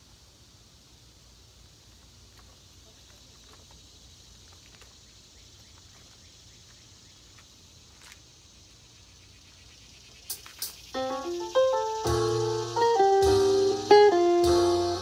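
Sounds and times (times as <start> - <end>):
insects chirping chorus: 0.0 - 15.0.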